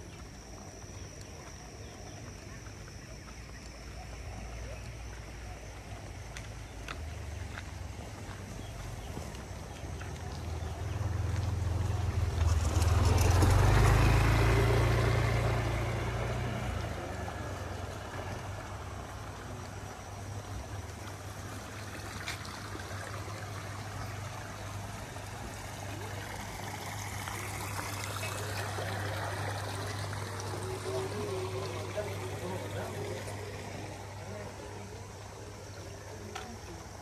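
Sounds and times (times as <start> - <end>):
steady low hum: 0.0 - 37.0
water trickling: 6.0 - 37.0
motor vehicle passing: 9.8 - 36.8.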